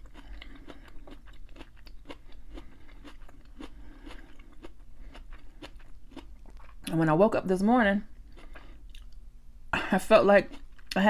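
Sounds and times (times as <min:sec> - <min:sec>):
person chewing food: 0:00.0 - 0:06.9, 0:08.1 - 0:09.2.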